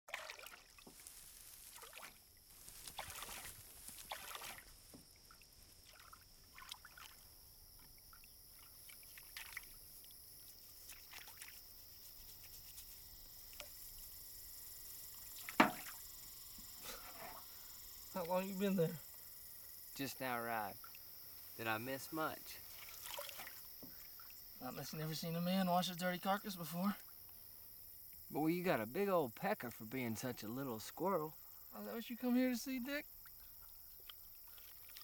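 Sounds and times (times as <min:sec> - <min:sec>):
water sloshing in a tin tub: 0:00.1 - 0:12.0, 0:15.1 - 0:16.1, 0:20.0 - 0:25.0, 0:33.1 - 0:35.0
steady high hiss: 0:11.6 - 0:23.0.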